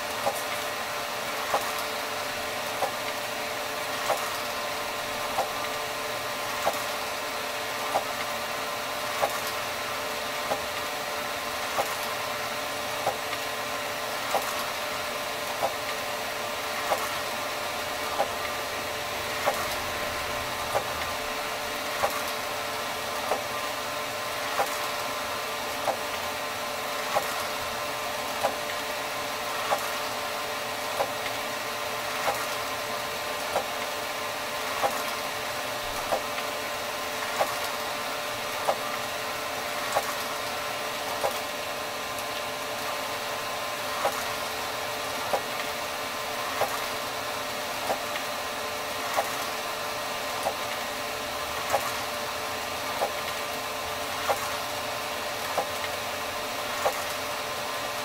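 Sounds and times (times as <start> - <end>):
inkjet printer whirring: 0.0 - 58.0
printer clicking: 56.7 - 57.3.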